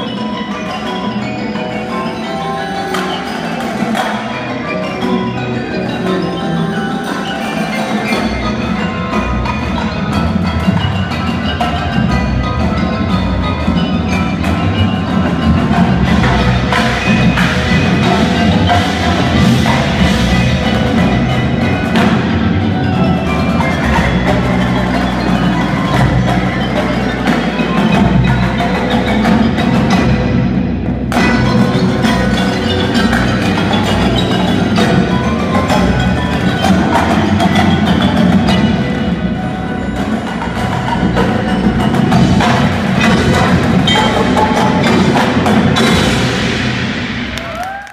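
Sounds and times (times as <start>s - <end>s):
marimbas and vibraphones: 0.0s - 47.8s
snare tenor and bass drums: 9.1s - 30.4s.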